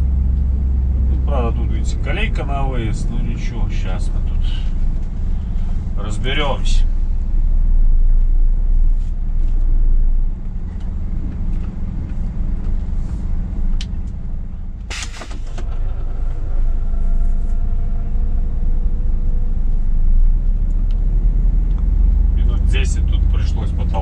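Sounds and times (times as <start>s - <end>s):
truck diesel engine rumble: 0.0s - 24.0s
short sharp hiss: 14.9s - 15.5s.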